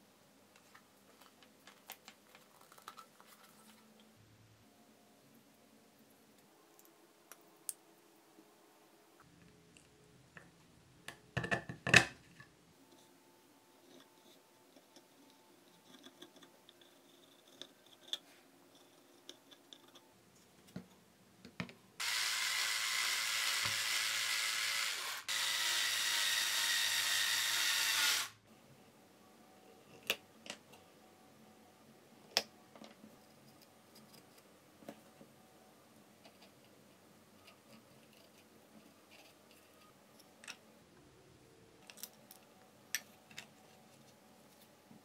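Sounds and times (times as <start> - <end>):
electric screwdriver running: 22.0 - 28.4.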